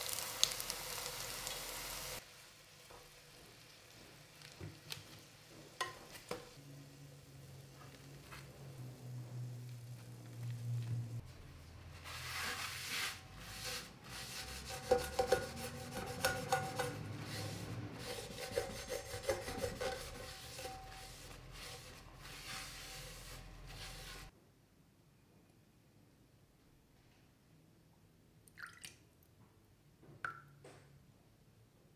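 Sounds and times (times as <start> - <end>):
paper towel scrubbing frying pan: 7.6 - 24.3.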